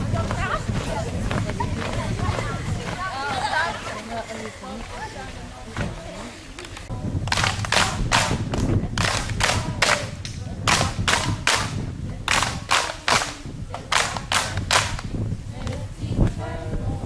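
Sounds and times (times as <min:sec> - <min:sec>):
children clapping in time: 0:07.3 - 0:08.4, 0:12.3 - 0:15.0.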